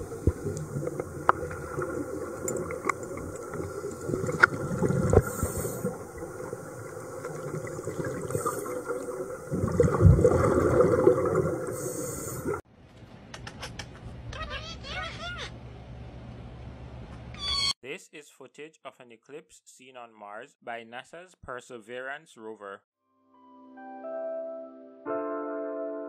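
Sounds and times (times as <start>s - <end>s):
air bubbling underwater: 0.0s - 12.6s
diver breathing through regulator: 5.1s - 6.0s, 11.7s - 12.6s.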